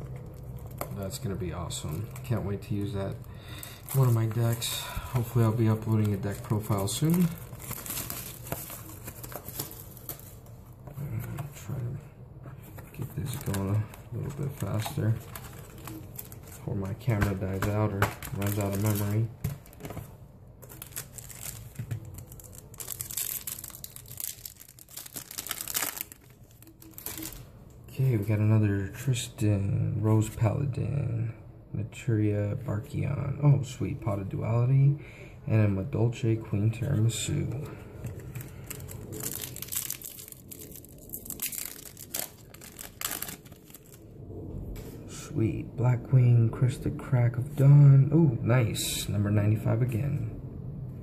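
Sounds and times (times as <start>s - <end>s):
foil wrapper tearing and crinkling: 0.2s - 10.5s, 13.2s - 20.0s, 20.6s - 27.5s, 38.2s - 44.0s.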